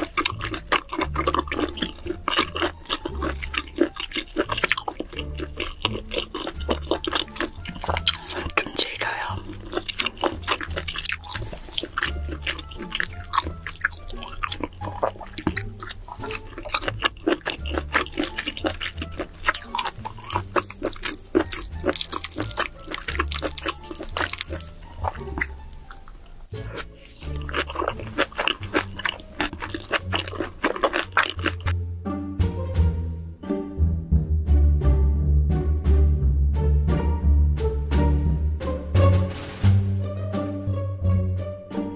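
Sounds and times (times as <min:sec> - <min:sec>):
wet chewing and squelching: 0:00.0 - 0:31.8
background music: 0:00.0 - 0:41.9.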